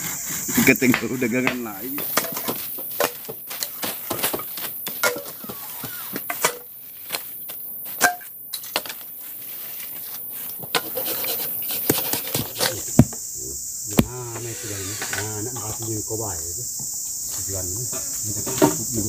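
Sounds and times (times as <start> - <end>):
leaves rustling: 0.0 - 19.0
machete hacking at soil: 13.9 - 14.4.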